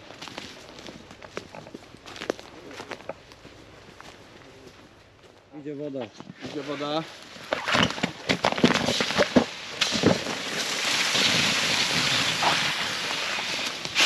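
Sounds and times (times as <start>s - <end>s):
fire hose crackling and popping: 6.1s - 14.0s
hose hissing: 9.7s - 14.0s.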